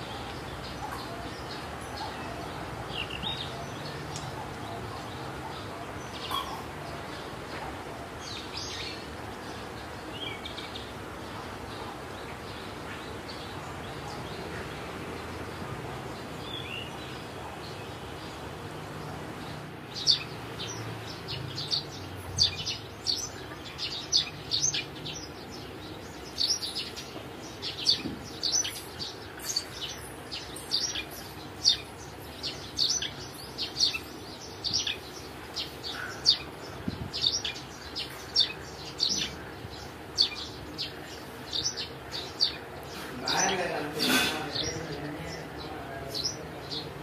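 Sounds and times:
small bird chirping: 19.5s - 43.7s.

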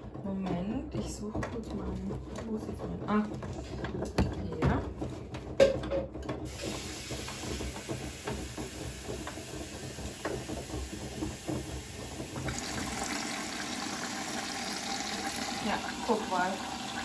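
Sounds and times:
washing machine taking in water: 6.5s - 17.0s.

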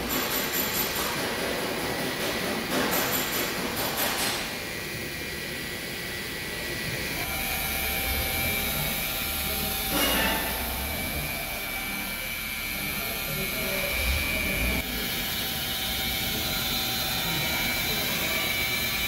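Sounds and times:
polishing pad rushing on paint: 1.1s - 19.0s
electric polisher motor whine: 4.5s - 19.0s.

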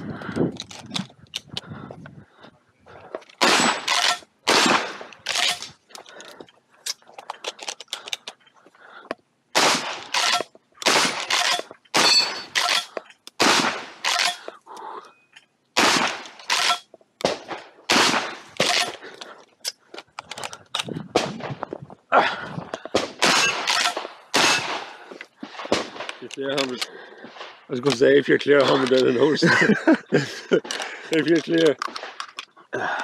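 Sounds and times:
shotgun shots: 3.4s - 5.6s, 9.5s - 14.4s, 15.8s - 18.9s, 23.0s - 26.2s
gun action clicks: 30.6s - 32.5s.

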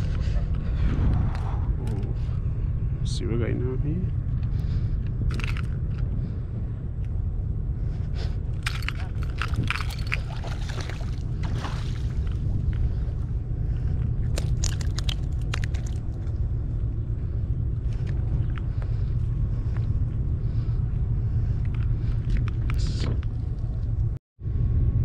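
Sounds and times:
steady low rumble: 0.0s - 25.0s
fish splashing at water surface: 8.6s - 12.4s.

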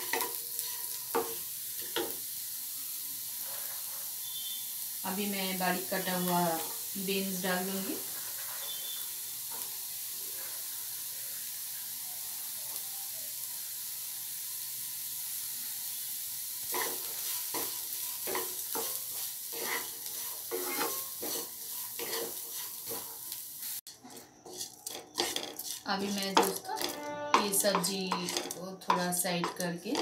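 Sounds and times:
vegetables sizzling in oil: 0.0s - 30.0s
wooden spatula scraping pan: 7.9s - 9.0s, 16.7s - 23.3s, 23.9s - 30.0s.

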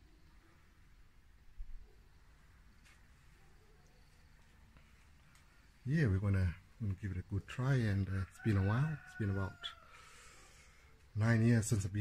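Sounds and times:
faint low hum: 0.0s - 12.0s
faint click: 3.8s - 5.6s.

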